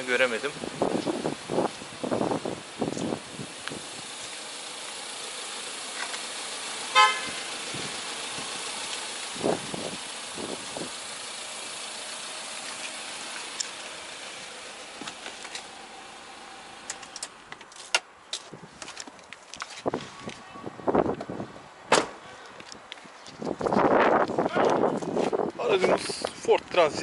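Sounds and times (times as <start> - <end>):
street noise: 0.0 - 27.0
car horn toot: 6.9 - 7.5.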